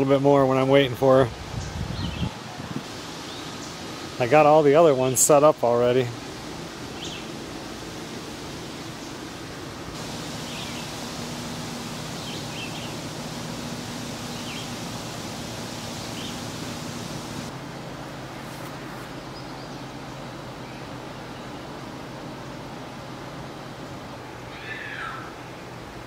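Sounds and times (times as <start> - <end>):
steady outdoor hiss: 0.0 - 26.0
bird chirps: 10.1 - 17.5.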